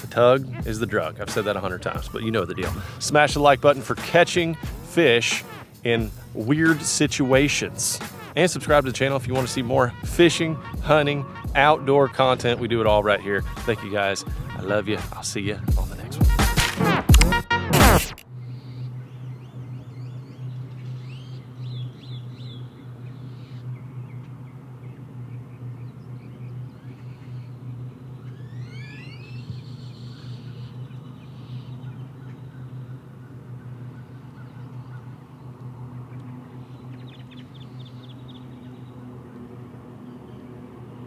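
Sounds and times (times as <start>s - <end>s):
birds chirping and calling: 0.0s - 7.8s, 18.3s - 41.0s
steady low hum: 0.0s - 41.0s.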